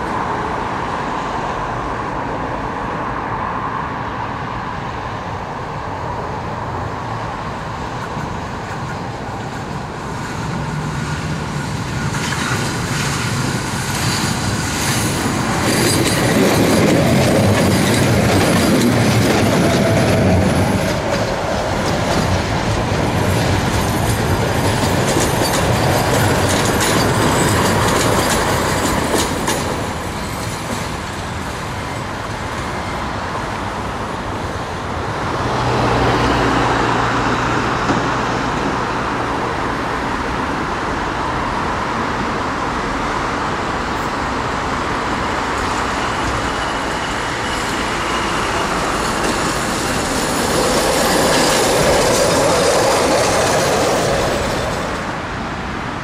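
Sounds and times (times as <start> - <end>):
tram running on rails: 0.0 - 56.0
wheels clicking over rail joints: 8.0 - 31.3, 45.4 - 55.2.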